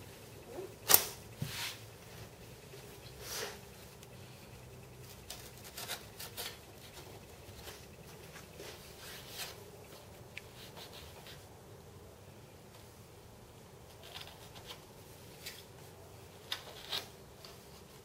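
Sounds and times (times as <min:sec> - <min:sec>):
tape scratching and rubbing: 0:04.9 - 0:09.6.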